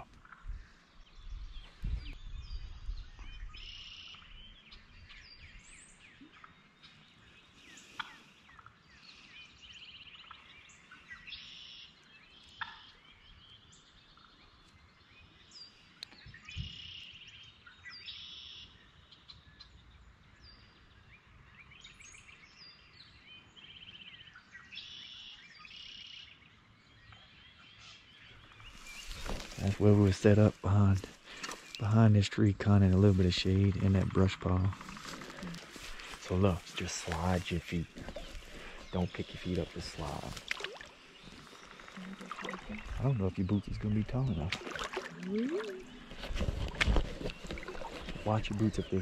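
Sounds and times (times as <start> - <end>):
songbirds singing: 0.0 - 49.0.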